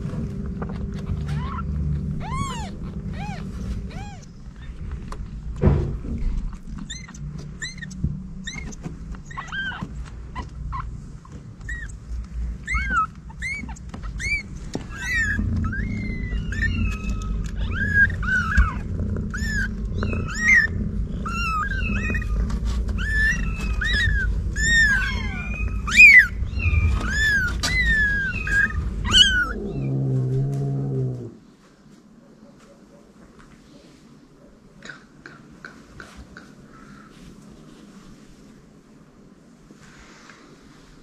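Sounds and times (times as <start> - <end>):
steady low rumble: 0.0 - 31.5
kittens mewing: 0.6 - 5.4, 6.4 - 31.4.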